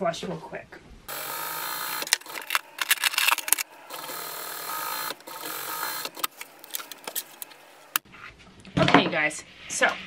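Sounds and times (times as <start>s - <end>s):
sewing machine running: 1.1s - 8.0s.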